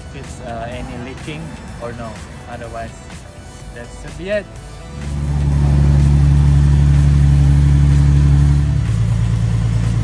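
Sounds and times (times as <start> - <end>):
car engine running: 0.0 - 3.8, 4.4 - 10.0.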